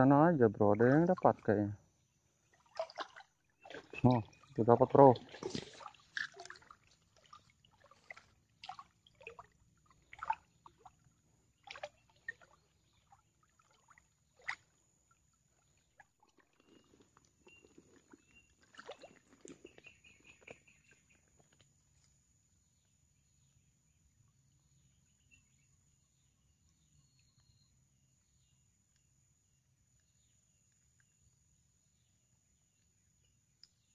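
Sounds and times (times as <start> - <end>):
shallow water splashing: 2.4 - 21.3.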